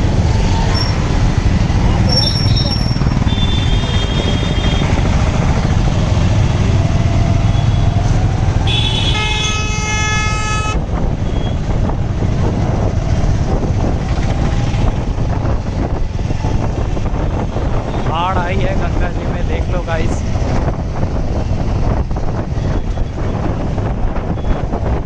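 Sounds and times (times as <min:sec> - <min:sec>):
motorcycle rumble: 0:00.0 - 0:25.0
vehicle horn: 0:03.2 - 0:04.9, 0:08.6 - 0:11.5.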